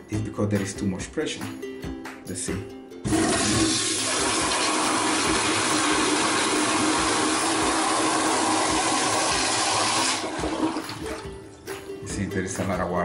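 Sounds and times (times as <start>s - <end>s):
toilet flushing water rush: 3.1s - 11.2s.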